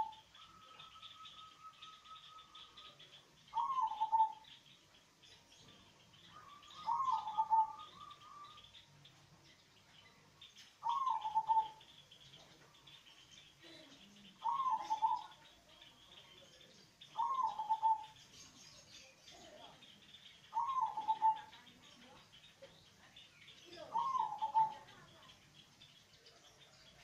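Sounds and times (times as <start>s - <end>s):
dove cooing: 0.0s - 4.6s, 6.3s - 8.7s, 10.8s - 12.0s, 13.6s - 15.6s, 17.1s - 18.2s, 20.5s - 21.8s, 23.8s - 25.2s.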